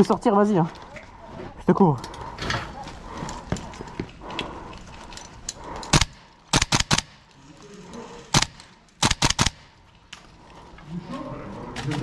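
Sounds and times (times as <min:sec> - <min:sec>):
airsoft rifle shots: 0:05.9 - 0:07.2, 0:08.3 - 0:09.8.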